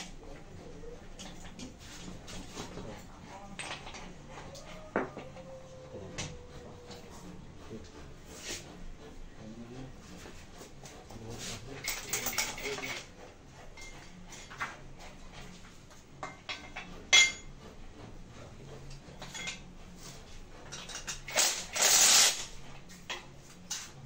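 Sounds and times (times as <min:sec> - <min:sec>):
metal parts clicking and clinking: 0:11.8 - 0:13.1, 0:20.7 - 0:22.5
cordless drill running: 0:21.3 - 0:22.5.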